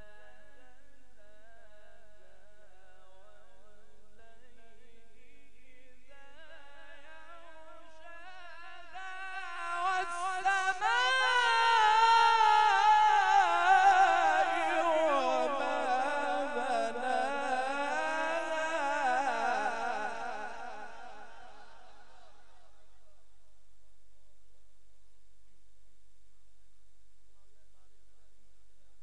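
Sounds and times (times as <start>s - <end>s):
man reciting melodically: 0.0s - 22.8s.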